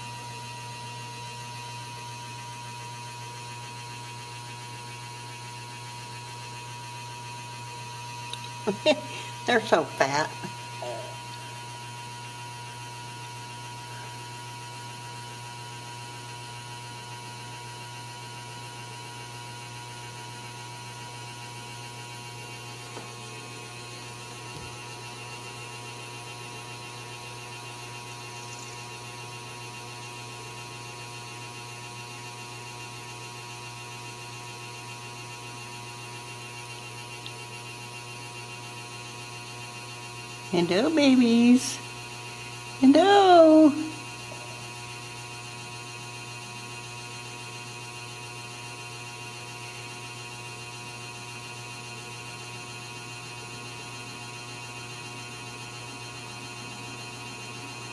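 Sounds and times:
electrical hum: 0:00.0 - 0:17.5, 0:19.7 - 0:31.7, 0:40.0 - 0:47.1.

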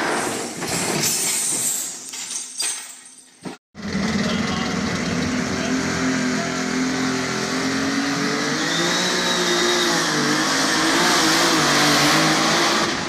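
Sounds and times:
tractor engine running flat out: 0:03.8 - 0:07.5.

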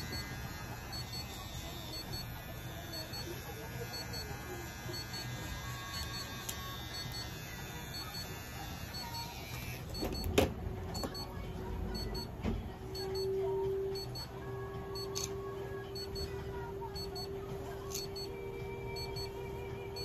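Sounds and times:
pet trimmer buzzing: 0:00.0 - 0:10.4.

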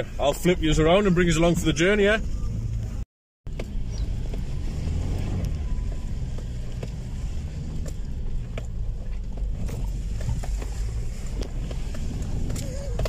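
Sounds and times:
vehicle engine running low: 0:00.0 - 0:13.0.

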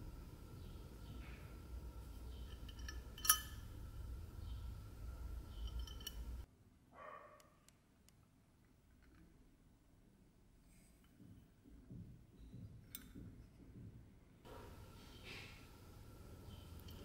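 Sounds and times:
low steady hum: 0:00.0 - 0:06.9, 0:07.8 - 0:17.0
metal box and chain clinking: 0:02.5 - 0:03.6, 0:05.5 - 0:06.4.

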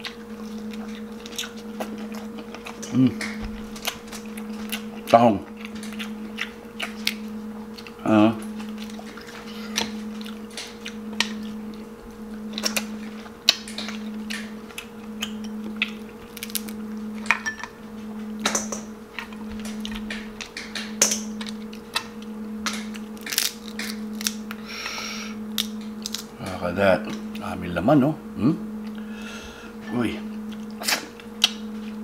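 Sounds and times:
chewing and mouth noises: 0:00.0 - 0:16.8, 0:18.5 - 0:24.6, 0:30.3 - 0:32.0
steady low hum: 0:00.0 - 0:32.0
crab shell cracking: 0:12.5 - 0:16.8, 0:18.4 - 0:24.6, 0:25.5 - 0:26.3.

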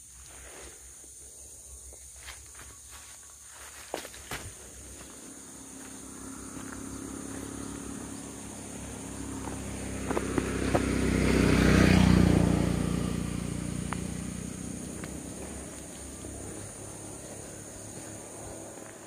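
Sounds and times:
high insect drone: 0:00.0 - 0:19.0
vehicle engine passing by: 0:04.9 - 0:19.0.

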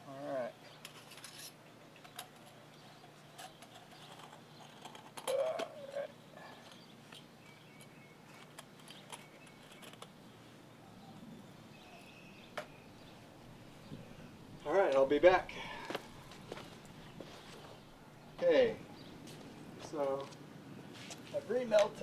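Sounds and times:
gloved hands handling: 0:00.7 - 0:10.2.

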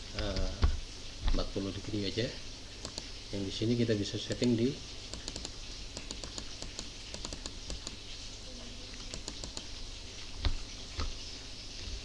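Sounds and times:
keyboard keys clicking: 0:04.3 - 0:08.0, 0:09.0 - 0:09.7.

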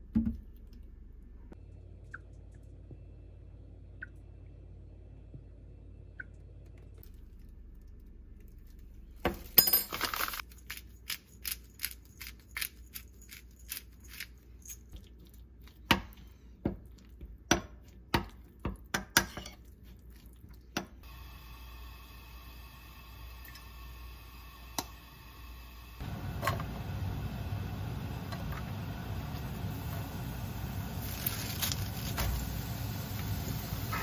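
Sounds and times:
pepper mill grinding: 0:09.9 - 0:14.9.

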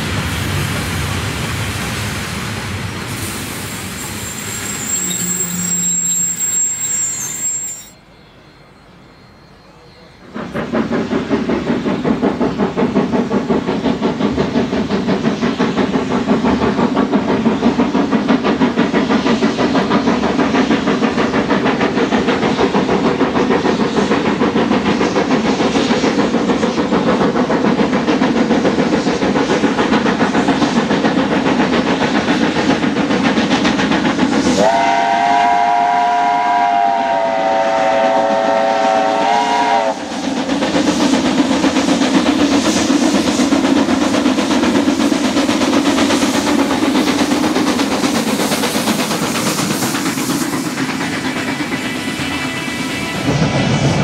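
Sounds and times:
steam locomotive exhaust beats: 0:00.0 - 0:54.0
chime steam whistle: 0:03.9 - 0:10.6, 0:34.6 - 0:40.1.

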